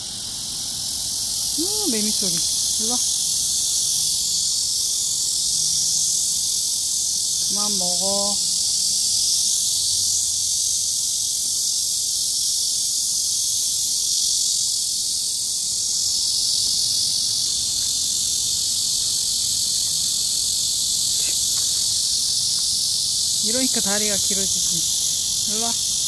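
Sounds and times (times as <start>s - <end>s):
cicadas buzzing: 0.0s - 26.0s.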